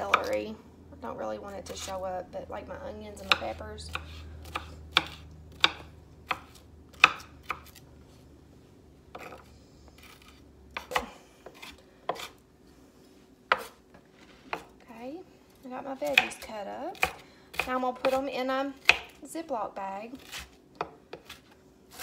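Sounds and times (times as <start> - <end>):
knife chopping on wooden board: 3.2 - 7.8, 9.1 - 12.4, 13.5 - 13.8, 16.0 - 18.2, 18.8 - 19.2, 20.2 - 22.0.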